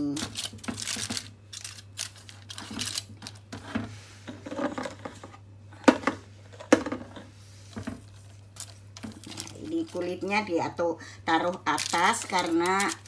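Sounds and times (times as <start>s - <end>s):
aluminium foil crinkling: 0.0s - 3.5s, 8.3s - 10.3s, 11.4s - 13.0s
low steady hum: 0.0s - 13.0s.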